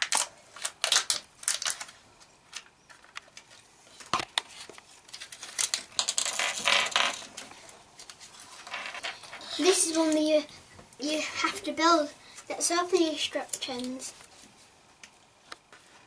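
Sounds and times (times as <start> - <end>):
foil seal crackling: 0.0 - 2.0, 5.1 - 7.4
plastic toy parts clicking and rattling: 0.0 - 3.4, 5.1 - 7.4, 13.5 - 14.0.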